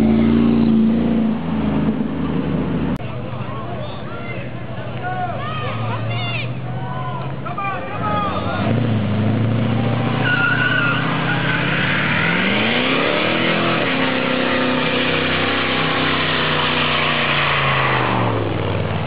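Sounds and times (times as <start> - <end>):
truck engine revving: 0.0 - 3.0, 8.0 - 19.0
tyres squealing and hissing: 10.2 - 12.9.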